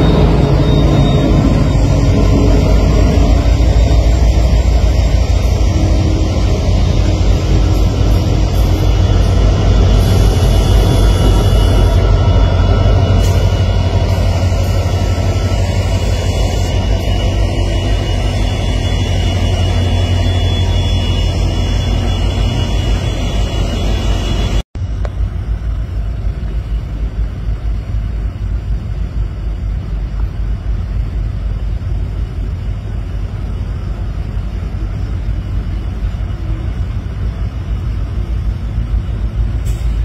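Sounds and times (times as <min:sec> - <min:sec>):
diesel locomotive engine rumbling: 0:00.0 - 0:40.0
train approaching rumble: 0:00.0 - 0:40.0.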